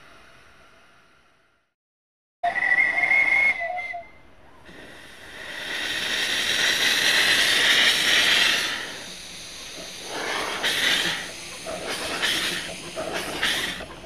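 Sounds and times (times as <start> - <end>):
two-note steam whistle: 2.4 - 4.2
steam hissing: 4.6 - 14.0.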